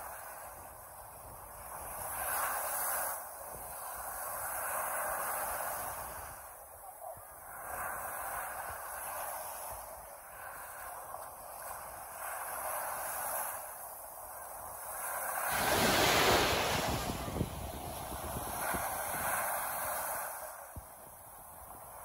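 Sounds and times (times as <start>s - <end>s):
sea surf washing onto beach: 0.0s - 22.0s
strong wind: 7.2s - 22.0s.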